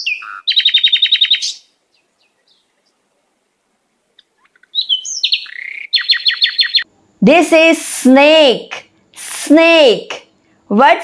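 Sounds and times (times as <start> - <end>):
bird chirping: 0.0 - 3.1, 4.1 - 6.9.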